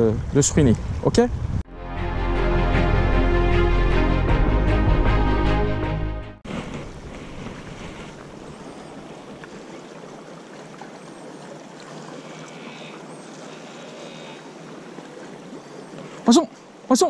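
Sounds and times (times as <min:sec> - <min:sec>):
waves lapping against rocks: 0:06.5 - 0:17.0.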